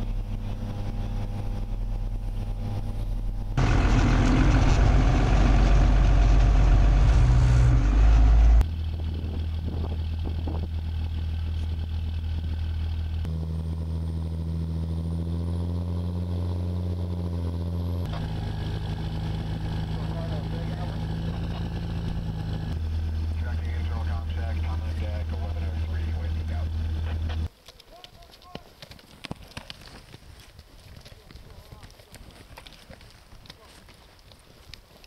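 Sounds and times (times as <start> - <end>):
over-snow vehicle engine: 0.0 - 27.5.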